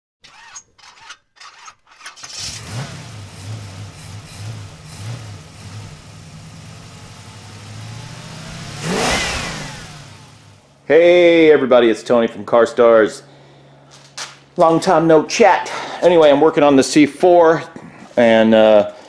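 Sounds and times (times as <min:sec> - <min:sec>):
car engine revving: 0:02.2 - 0:11.0
car engine starting and idling: 0:02.2 - 0:11.4.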